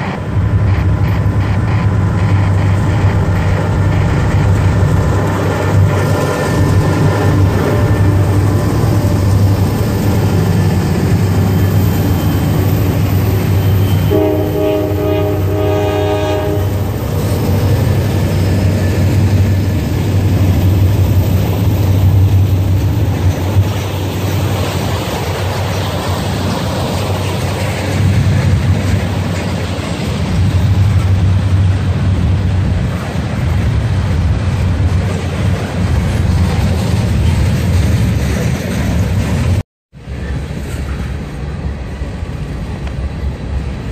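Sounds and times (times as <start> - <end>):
freight train rumbling on rails: 0.0 - 43.9
locomotive horn blast: 13.8 - 17.0.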